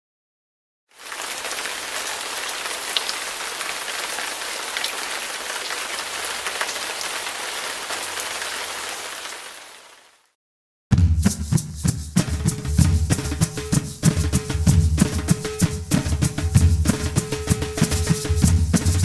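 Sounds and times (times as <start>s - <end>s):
rain-like water hiss: 0.9s - 10.4s.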